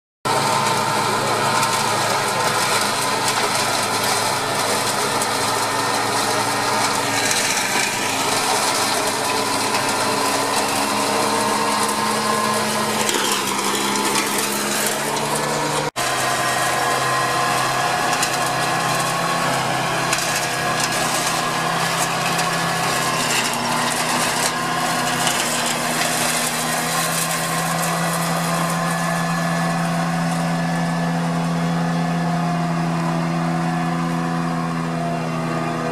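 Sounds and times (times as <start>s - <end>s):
engine running under load: 0.3s - 35.9s
flail mower cutting grass: 0.3s - 35.9s.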